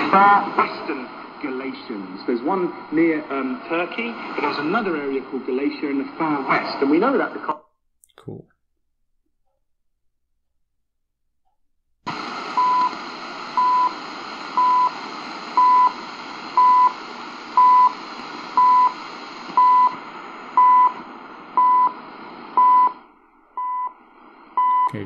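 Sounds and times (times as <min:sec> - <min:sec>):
radio static hiss: 0:00.0 - 0:07.6, 0:12.1 - 0:22.6.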